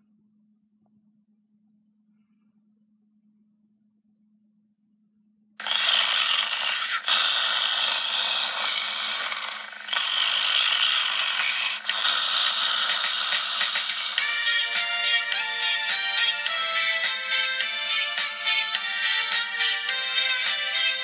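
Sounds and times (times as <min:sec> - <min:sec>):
harsh scratchy noise: 0:05.6 - 0:14.8.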